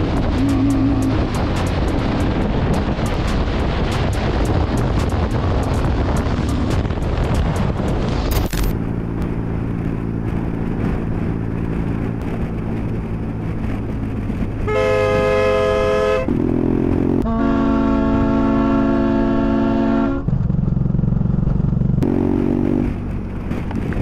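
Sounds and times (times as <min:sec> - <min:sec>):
vehicle engine and road noise: 0:00.0 - 0:24.0
vehicle horn blasts: 0:14.7 - 0:16.3, 0:17.2 - 0:20.2.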